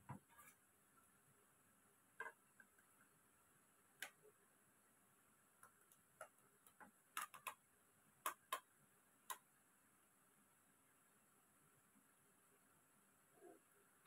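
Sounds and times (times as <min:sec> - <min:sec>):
faint plastic clicks and taps: 0:02.2 - 0:03.2, 0:03.9 - 0:04.3, 0:05.6 - 0:07.6, 0:08.2 - 0:09.5.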